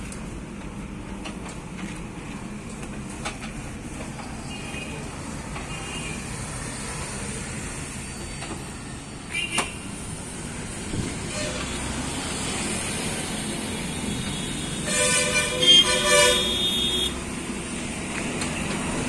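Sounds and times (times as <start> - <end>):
road traffic hum: 0.0 - 19.0.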